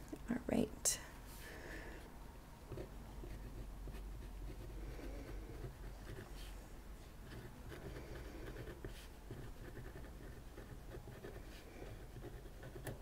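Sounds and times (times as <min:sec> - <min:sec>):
fountain pen scratching on paper: 0:02.7 - 0:06.6, 0:07.2 - 0:13.0.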